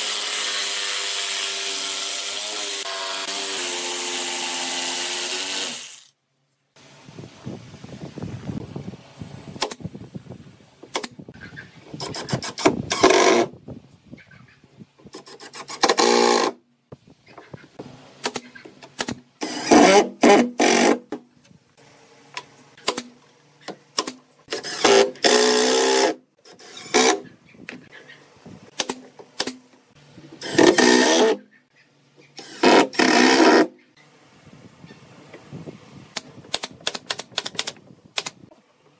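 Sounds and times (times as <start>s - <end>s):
impact driver driving screws: 12.0s - 13.5s, 15.2s - 16.6s, 24.0s - 27.2s, 30.4s - 31.4s, 32.4s - 33.7s.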